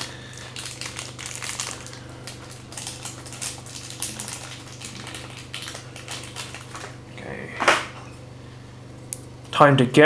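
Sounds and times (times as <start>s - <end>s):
plastic packaging crinkling: 0.0s - 7.0s.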